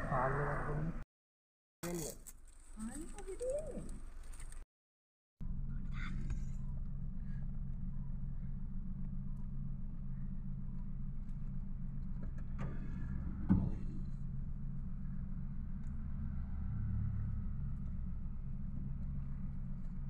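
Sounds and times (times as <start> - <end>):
car engine idling: 5.4 - 20.0.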